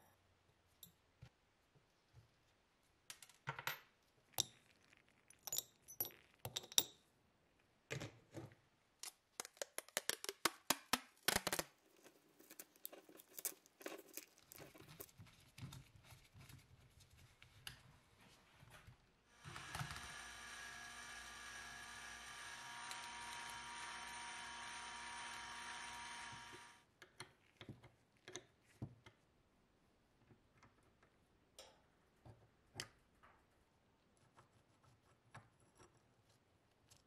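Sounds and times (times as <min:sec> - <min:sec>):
motor humming: 0:19.4 - 0:26.8.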